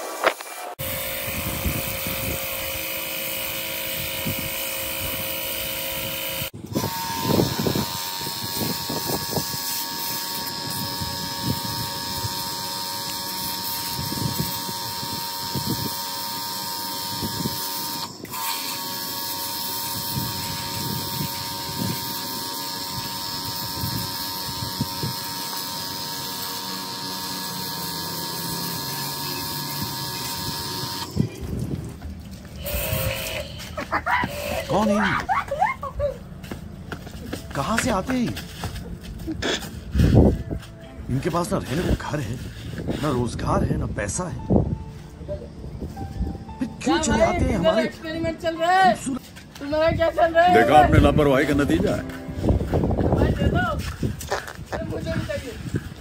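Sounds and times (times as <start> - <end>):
water jet hissing on concrete: 0.0 - 35.0
pressure washer pump whining: 0.8 - 35.0.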